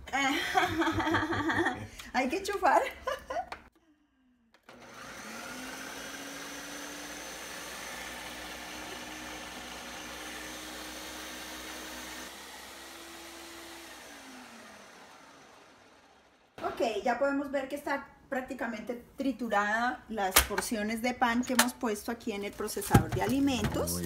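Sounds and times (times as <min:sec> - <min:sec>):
blender motor grinding: 0:04.5 - 0:16.6.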